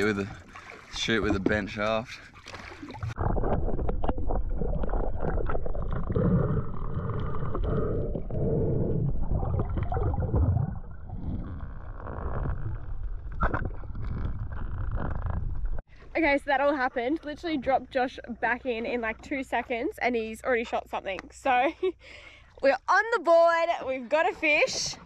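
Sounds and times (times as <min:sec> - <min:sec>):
underwater water rush with gurgling: 0:00.0 - 0:15.8.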